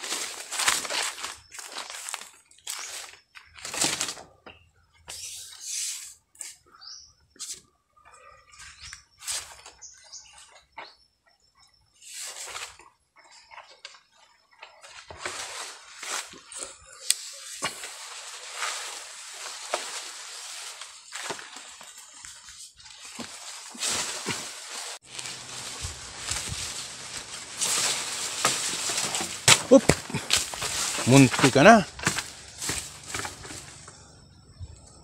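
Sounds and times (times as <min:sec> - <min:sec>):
leaves and branches rustling: 0:00.0 - 0:05.4, 0:12.0 - 0:34.1.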